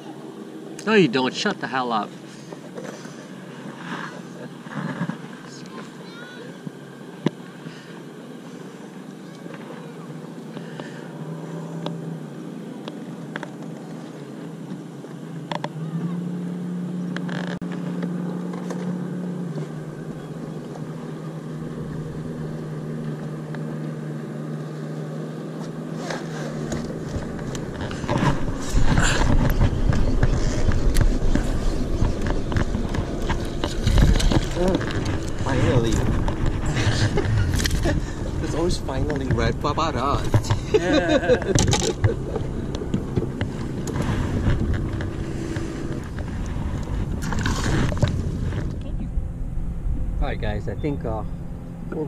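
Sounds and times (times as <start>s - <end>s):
low motor hum: 0.0s - 52.0s
rumbling crackling noise: 25.6s - 52.0s.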